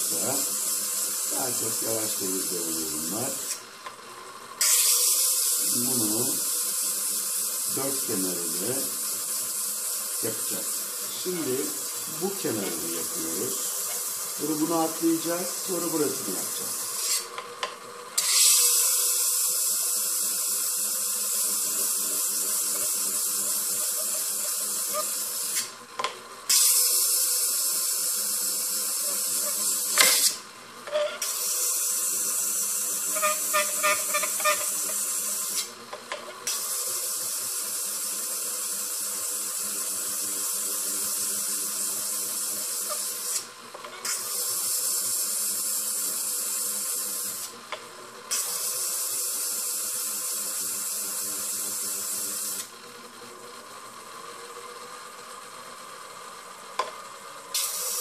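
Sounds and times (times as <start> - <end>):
motor humming faintly: 0.0 - 58.0
stone grinding on diamond lap: 33.1 - 35.0.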